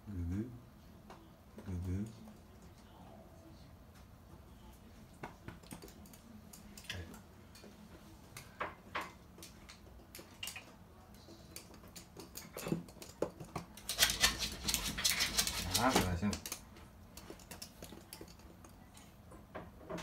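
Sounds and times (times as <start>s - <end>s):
dog claws clicking on hard floor: 5.2s - 7.7s, 9.0s - 18.8s.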